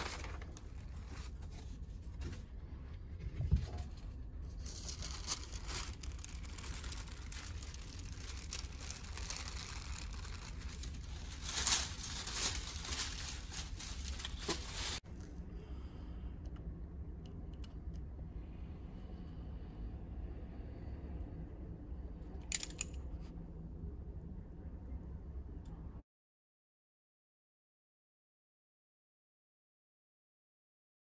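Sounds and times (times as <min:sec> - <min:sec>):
paper rustling and crinkling: 0:00.0 - 0:02.5, 0:03.4 - 0:15.0.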